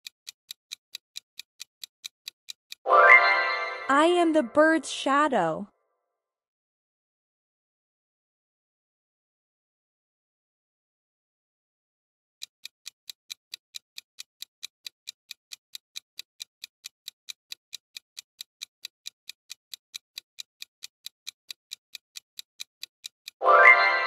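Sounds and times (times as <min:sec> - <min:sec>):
fast clock-like ticking: 0:00.0 - 0:02.9, 0:12.4 - 0:24.0.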